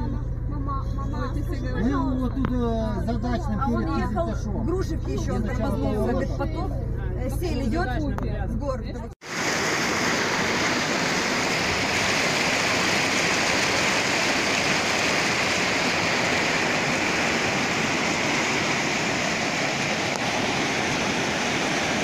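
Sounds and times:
floodwater rushing: 9.2 - 22.0.

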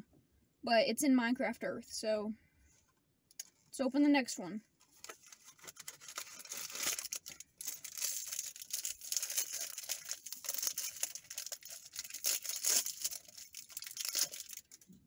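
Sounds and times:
plastic wrapper crinkling: 4.8 - 15.0.

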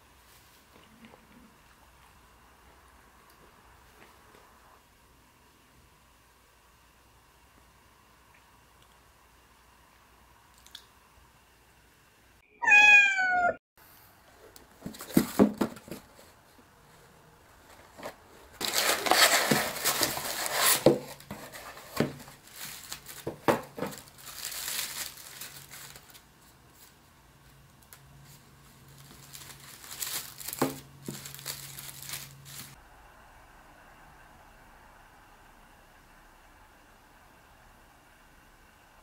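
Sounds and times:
wrapping paper crinkling: 17.7 - 32.8
cardboard box being opened: 17.8 - 25.1.

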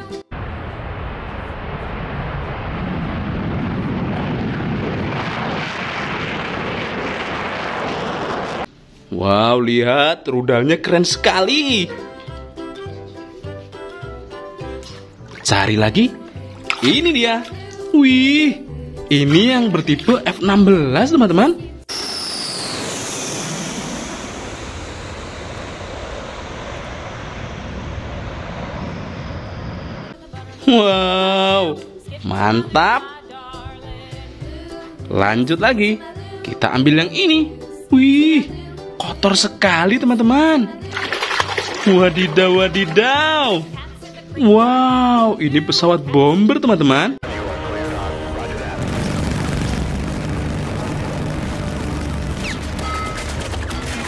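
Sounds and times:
jet engines roaring on takeoff: 0.4 - 8.7, 21.9 - 30.2, 47.2 - 54.0.

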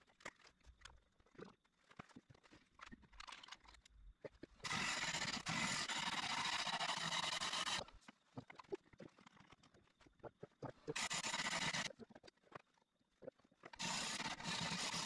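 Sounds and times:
lathe gouge scraping wood: 4.6 - 7.8, 10.9 - 11.9, 13.8 - 15.0.

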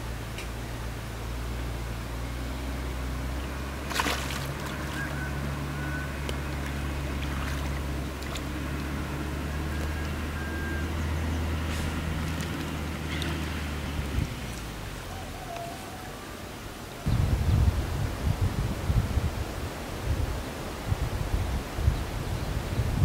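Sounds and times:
fish splashing in shallow water: 3.0 - 15.0.

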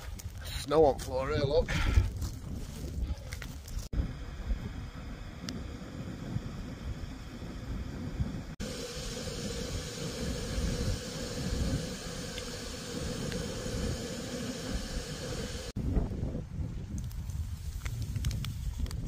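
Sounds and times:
wind buffeting microphone: 0.8 - 19.0
gas stove hissing: 4.0 - 15.8.

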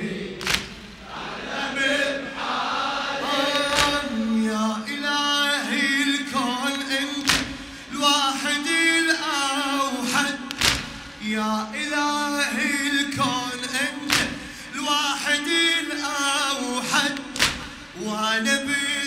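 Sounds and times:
chest beating slaps: 0.4 - 1.0, 3.7 - 4.1, 7.2 - 7.8, 10.3 - 11.2, 14.1 - 14.6, 17.0 - 18.0
man chanting a lament: 3.2 - 19.0.

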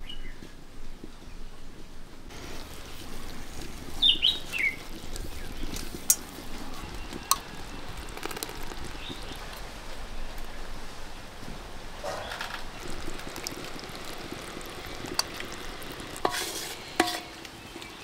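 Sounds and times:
low background noise: 0.0 - 18.0
bird chirping: 3.1 - 11.2.

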